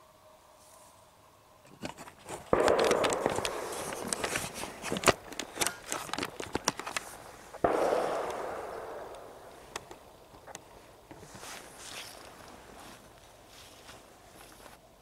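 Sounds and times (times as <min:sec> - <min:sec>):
sharp crackling clicks: 0:02.2 - 0:11.2
distant gunshot: 0:02.5 - 0:04.6, 0:07.6 - 0:10.2.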